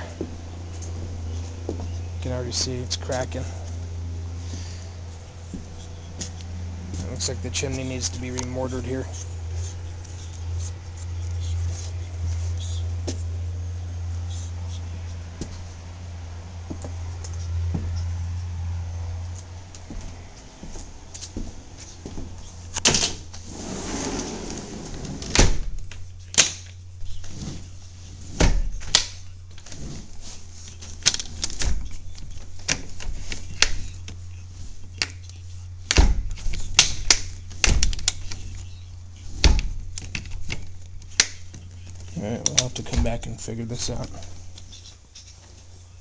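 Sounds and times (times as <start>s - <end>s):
footsteps on wooden deck boards: 0.0s - 13.4s, 15.1s - 15.9s, 16.6s - 22.8s
steady low hum: 0.0s - 46.0s.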